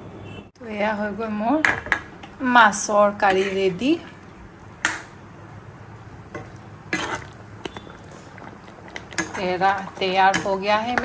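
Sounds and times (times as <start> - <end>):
ladle clinking against pot: 9.0 - 11.0.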